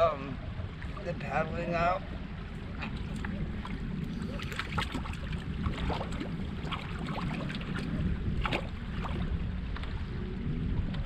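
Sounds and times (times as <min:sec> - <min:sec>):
wind rumble on microphone: 0:00.0 - 0:11.0
water splashing against canoe: 0:02.6 - 0:10.1.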